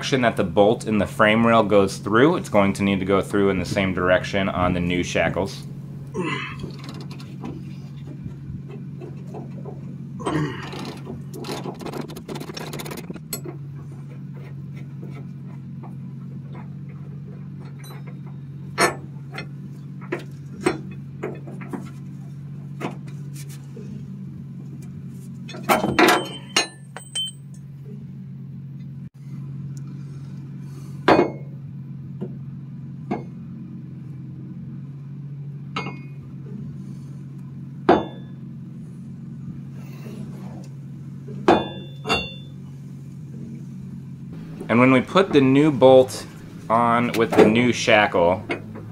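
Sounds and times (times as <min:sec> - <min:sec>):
steady low hum: 0:00.0 - 0:48.9
metallic clinks and knocks: 0:17.5 - 0:21.6, 0:25.5 - 0:27.6, 0:41.5 - 0:42.6
ringing metal clank: 0:17.6 - 0:19.6, 0:25.5 - 0:27.6, 0:35.8 - 0:36.2, 0:37.9 - 0:38.4, 0:41.5 - 0:42.6.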